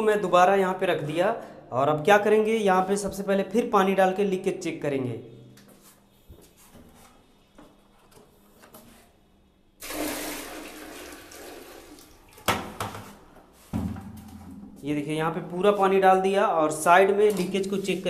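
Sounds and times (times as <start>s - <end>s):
water pouring into toilet bowl: 9.8s - 12.6s.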